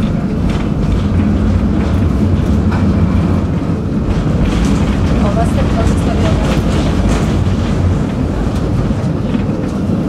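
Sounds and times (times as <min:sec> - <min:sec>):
tram wheels rumbling on rails: 0:00.0 - 0:10.0.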